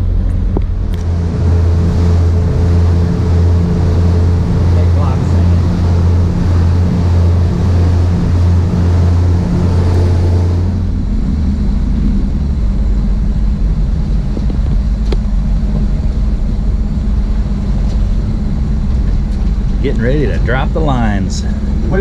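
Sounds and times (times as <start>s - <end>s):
boat engines running: 0.0s - 22.0s
wake water rushing: 0.8s - 15.7s.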